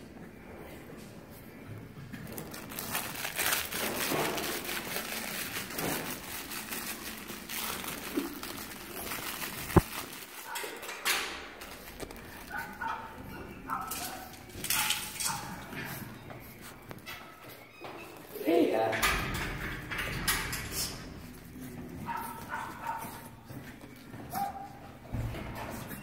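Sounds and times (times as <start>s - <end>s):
blankets rustling and crinkling: 2.2s - 17.0s.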